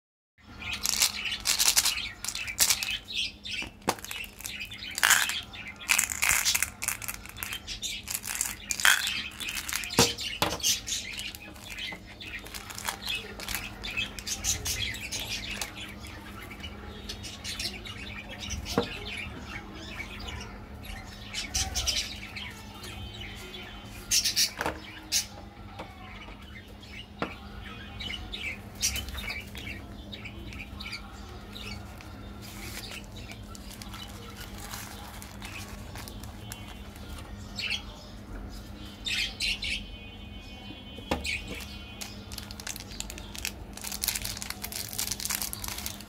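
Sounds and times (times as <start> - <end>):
candy wrappers rustling and tearing: 0.7 - 3.1, 3.8 - 15.9, 31.6 - 37.4, 41.5 - 46.0.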